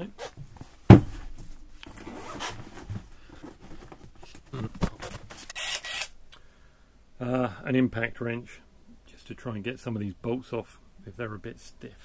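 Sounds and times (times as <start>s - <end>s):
rustling and shuffling: 0.0s - 5.5s
knocks: 0.9s - 1.4s
heavy tool clunk: 0.9s - 1.5s.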